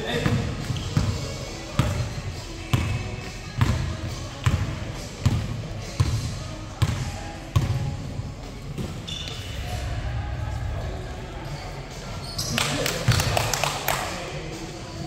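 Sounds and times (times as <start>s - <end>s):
basketball bouncing on court: 2.7s - 8.0s.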